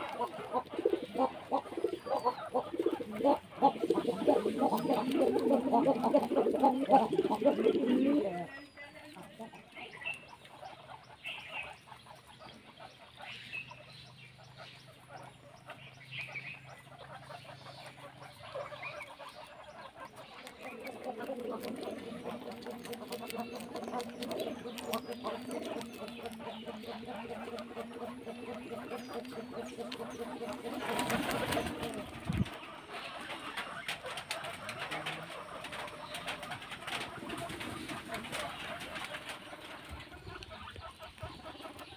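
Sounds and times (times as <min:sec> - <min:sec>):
guinea pigs chewing: 0:00.0 - 0:13.9, 0:14.5 - 0:41.9.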